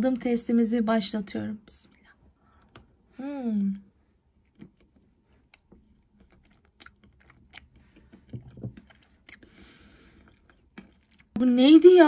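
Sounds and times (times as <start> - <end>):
chewing chocolate with nuts: 4.3 - 11.4.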